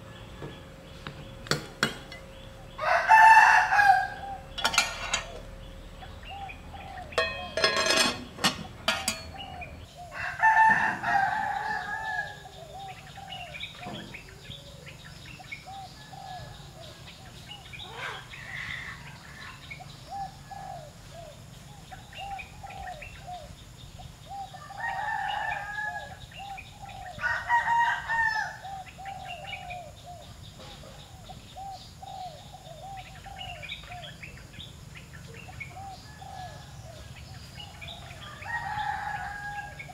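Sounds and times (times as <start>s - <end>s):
chickens clucking: 0.0s - 15.0s
small birds chirping: 0.0s - 39.9s
rooster crowing: 2.6s - 5.6s, 9.1s - 13.5s, 24.5s - 26.3s, 27.0s - 28.9s, 35.8s - 37.2s, 37.8s - 39.9s.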